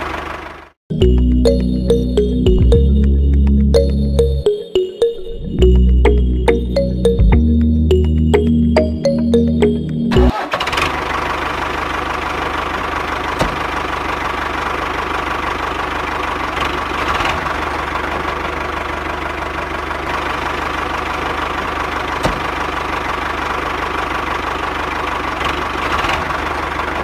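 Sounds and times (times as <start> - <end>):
engine idling with knocking pulse: 0.0 - 0.7, 10.7 - 27.0
music: 0.9 - 10.3.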